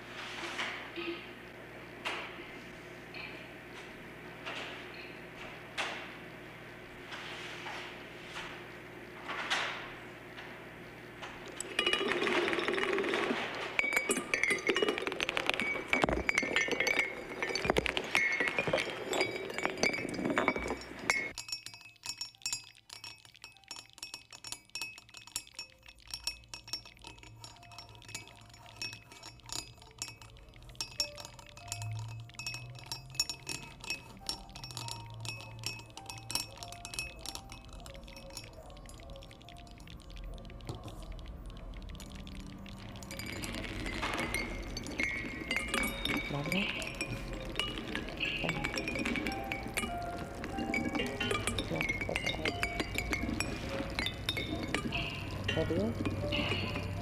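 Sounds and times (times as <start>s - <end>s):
glassy clinking and tinkling: 11.4s - 57.0s.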